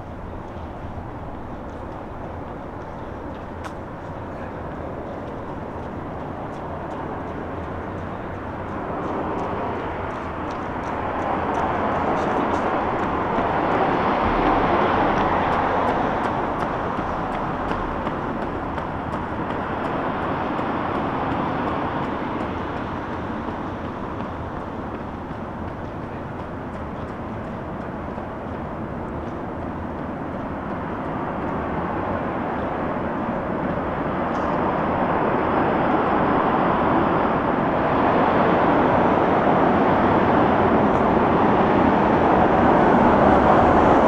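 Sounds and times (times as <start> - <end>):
vehicle passing by: 5.4 - 26.3.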